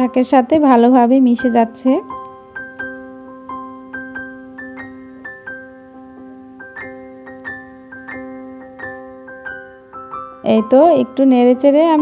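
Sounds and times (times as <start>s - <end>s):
gentle keyboard tune: 0.0s - 12.0s.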